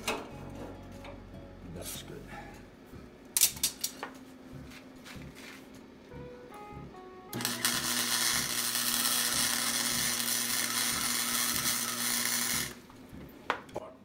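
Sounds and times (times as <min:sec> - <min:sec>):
welding arc crackling hiss: 0:07.4 - 0:12.9.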